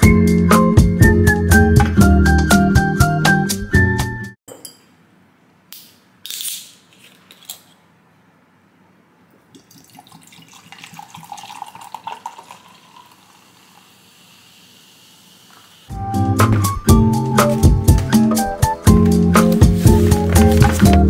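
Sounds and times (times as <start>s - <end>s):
drink pouring and fizzing: 9.5s - 15.8s.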